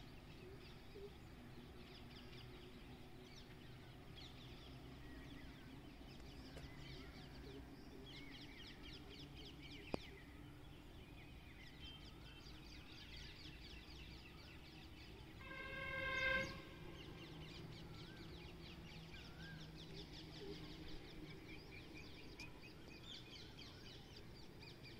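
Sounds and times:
small birds chirping: 0.0s - 24.9s
loud steady-pitched hoot: 15.4s - 16.8s.

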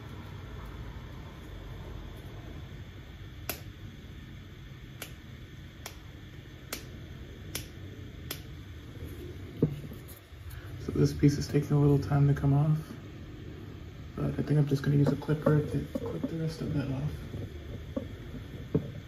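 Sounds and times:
steady low hum: 0.0s - 19.0s
sharp plastic clicks: 7.5s - 8.5s.

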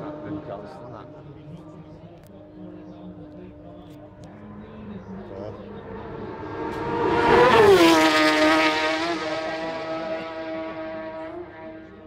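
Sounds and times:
motorcycle passing at high revs: 5.8s - 12.0s.

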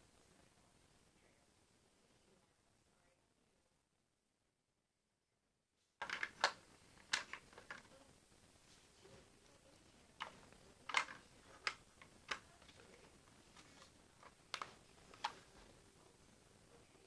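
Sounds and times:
faint clicks and taps: 9.4s - 16.1s.

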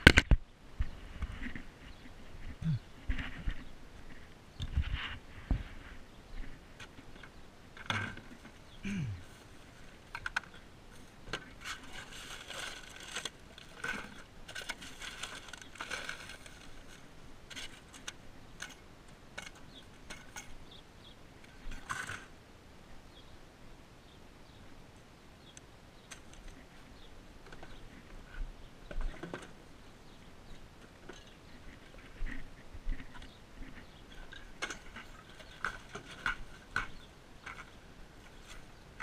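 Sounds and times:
bags and boxes rustling: 10.9s - 17.9s.

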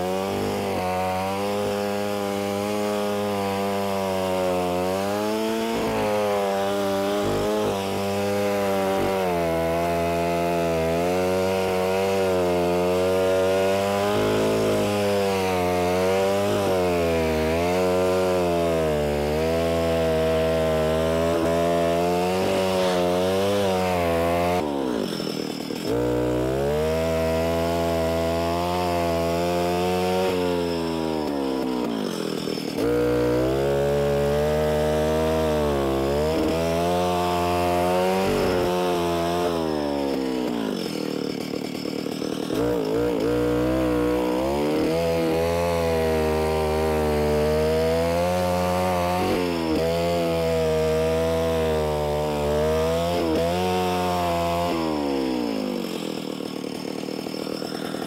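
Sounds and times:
cutter wheel digging through soil: 0.0s - 58.0s
two-stroke engine running under load: 0.0s - 58.0s.

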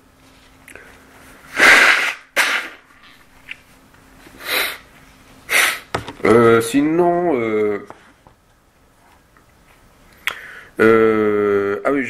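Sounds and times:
person sneezing: 1.5s - 2.8s, 4.4s - 4.8s, 5.5s - 5.9s
person sniffing: 1.5s - 2.8s, 4.4s - 4.9s, 5.5s - 5.9s.

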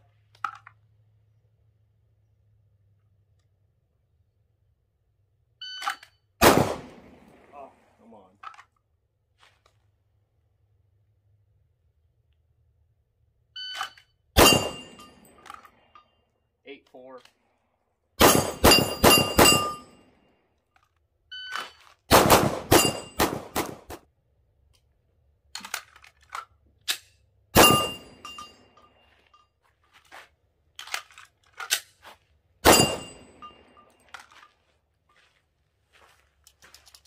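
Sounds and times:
pistol shots: 6.4s - 7.5s, 14.4s - 15.1s, 18.2s - 20.0s, 22.1s - 24.0s, 27.6s - 28.2s, 32.6s - 33.3s
electronic shot timer beep: 13.6s - 14.8s
steel target ringing: 14.4s - 15.4s, 18.2s - 20.0s, 22.6s - 23.3s, 27.6s - 29.1s, 32.6s - 34.0s.

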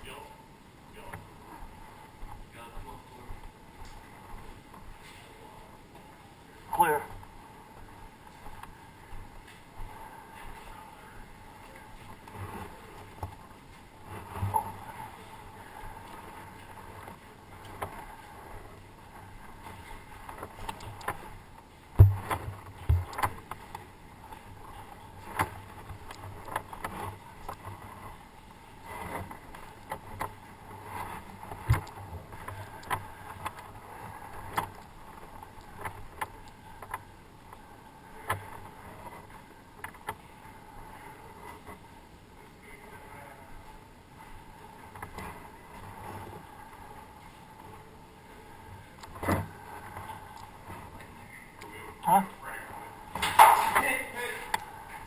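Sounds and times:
heavy thump: 22.0s - 23.1s
footsteps on concrete stairs: 22.0s - 23.6s.

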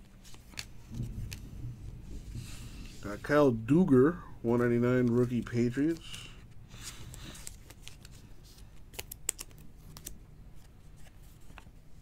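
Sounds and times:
card sliding into plastic sleeve: 5.0s - 11.7s
card and plastic clicks: 8.9s - 10.2s.

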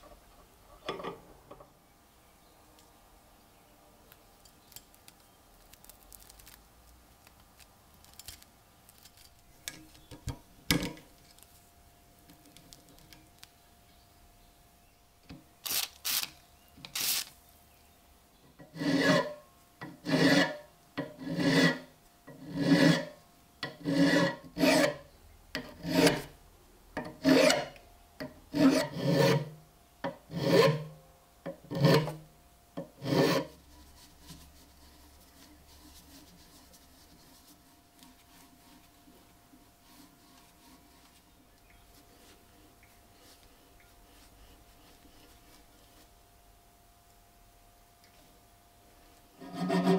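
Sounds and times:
hand file rasping on metal: 18.6s - 26.3s, 27.0s - 27.8s, 28.5s - 29.6s, 30.3s - 30.9s, 31.7s - 32.2s, 33.0s - 33.6s, 49.4s - 49.9s.

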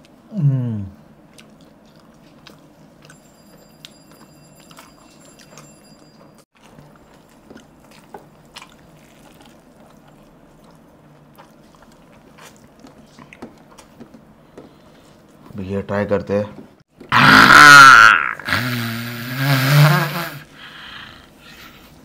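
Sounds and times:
wet chewing and smacking: 1.2s - 15.5s.

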